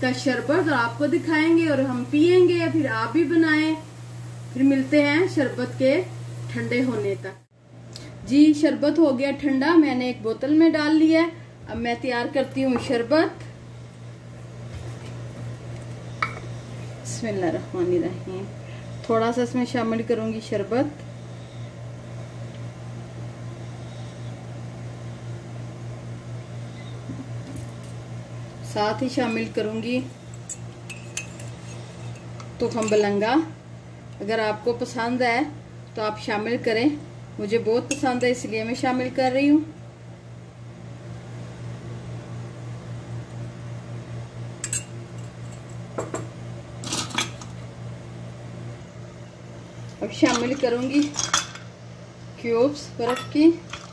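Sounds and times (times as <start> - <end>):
faint hiss: 0.0 - 7.5
steady low hum: 0.0 - 53.9.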